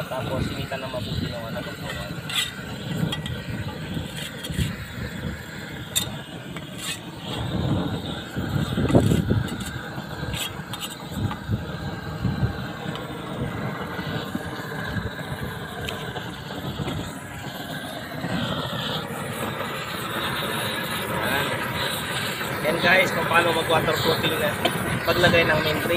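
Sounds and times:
roofing torch burning: 0.0 - 25.9
wind buffeting microphone: 0.0 - 25.9.

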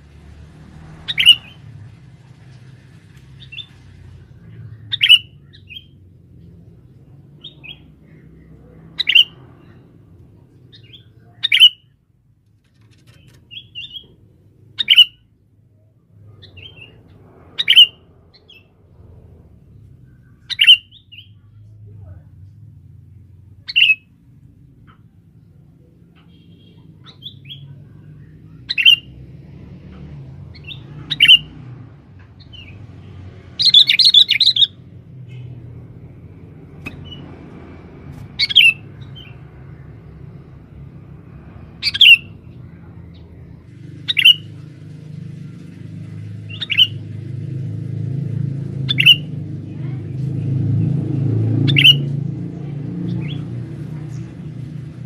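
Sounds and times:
bulbul calling: 1.0 - 1.7, 4.7 - 6.0, 7.4 - 9.8, 10.7 - 11.9, 13.1 - 15.3, 17.6 - 18.7, 20.4 - 21.4, 28.6 - 29.1, 30.5 - 31.6, 33.6 - 35.6, 38.4 - 39.4, 41.8 - 42.5, 44.0 - 44.6, 46.4 - 47.0, 48.9 - 49.3, 51.6 - 52.1.

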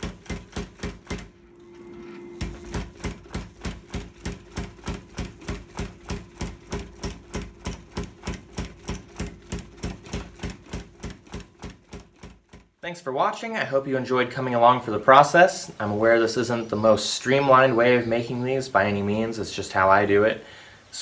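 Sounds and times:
rapid knocks: 0.0 - 1.3, 2.5 - 12.8.

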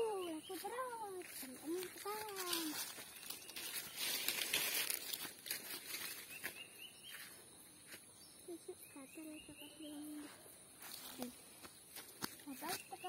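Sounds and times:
footsteps in dry leaves: 0.1 - 8.0, 10.8 - 13.0.

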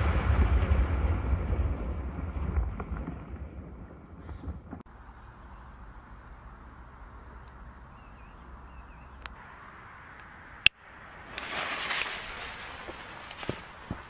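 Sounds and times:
firework fuse hissing: 11.1 - 14.0.

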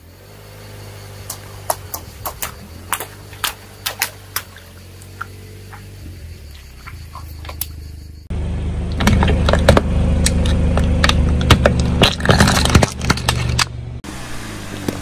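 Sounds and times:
steady low hum: 0.0 - 15.0
plastic jars cracking and crunching: 8.9 - 13.7.

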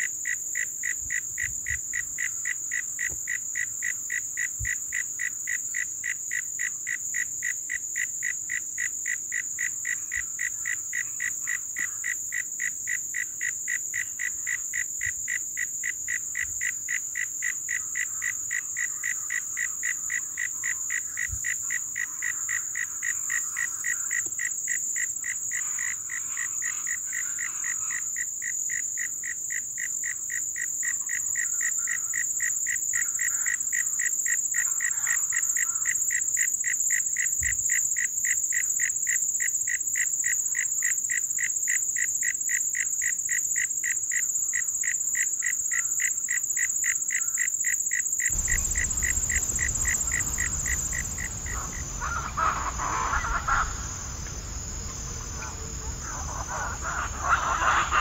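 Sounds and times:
irregular frog calls: 0.0 - 58.0
frog calling: 45.7 - 58.0
high-pitched insect drone: 47.2 - 58.0.

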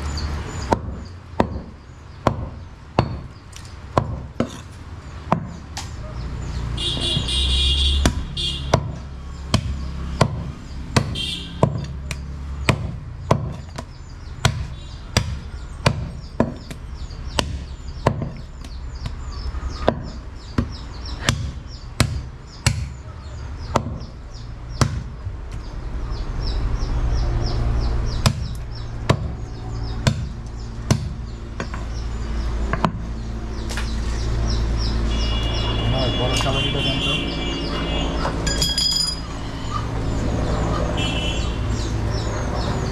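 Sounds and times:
cleaver chopping on wooden block: 0.7 - 5.9, 8.0 - 19.2, 19.8 - 23.0, 23.6 - 24.2, 24.8 - 25.2, 28.2 - 29.4, 30.0 - 31.8, 32.7 - 33.0.

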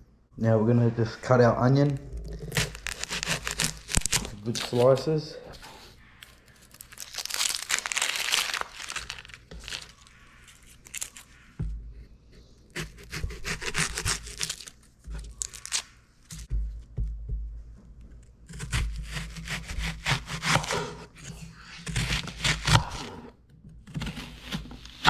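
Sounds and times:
onion skin crackling and tearing: 1.8 - 11.3, 12.7 - 16.5.

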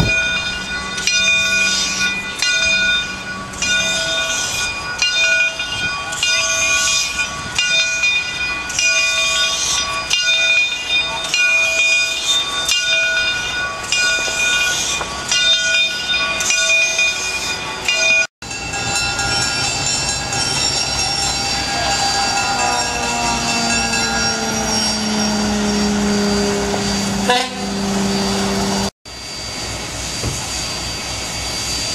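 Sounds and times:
steam locomotive bell ringing: 0.0 - 31.9
locomotive rolling past rumble: 10.9 - 31.9.

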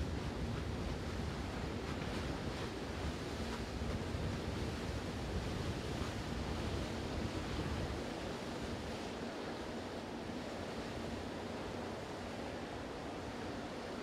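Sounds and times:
wind on the microphone: 0.0 - 9.5.

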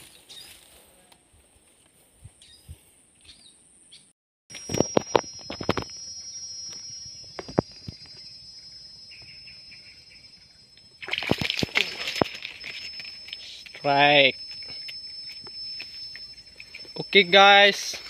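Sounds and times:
knocks and rustles in grass: 0.0 - 3.0
steady high-pitched tone: 4.5 - 18.0
chirping call: 4.6 - 11.0.

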